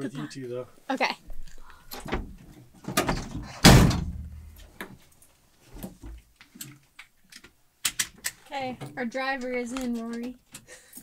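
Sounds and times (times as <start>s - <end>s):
knocks and bumps: 2.1s - 4.7s
van door slamming shut: 2.9s - 4.4s.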